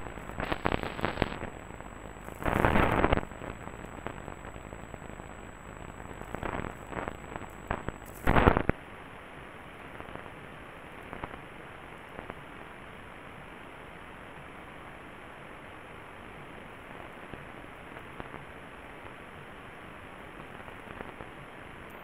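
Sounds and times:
radio static hiss: 0:00.0 - 0:08.8, 0:09.6 - 0:12.9, 0:16.8 - 0:22.0
static crackles and crashes: 0:00.0 - 0:08.8, 0:09.8 - 0:12.7, 0:20.4 - 0:22.0.

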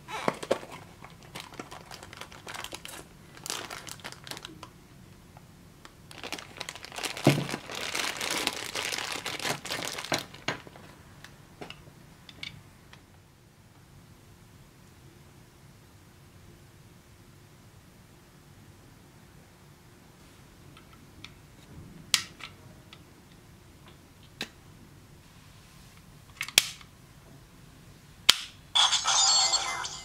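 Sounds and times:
plastic bag crinkling: 0:00.2 - 0:04.7, 0:06.1 - 0:10.9.

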